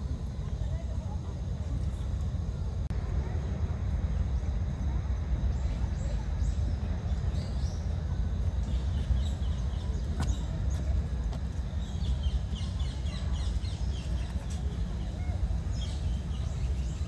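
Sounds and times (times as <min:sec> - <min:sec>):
steady low rumble: 0:00.0 - 0:17.0
small birds chirping: 0:04.0 - 0:17.0.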